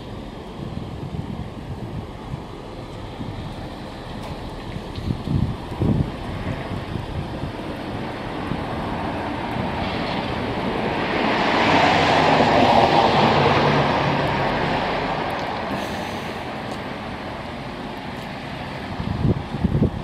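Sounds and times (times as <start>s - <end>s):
vehicle passing by: 5.8s - 17.1s.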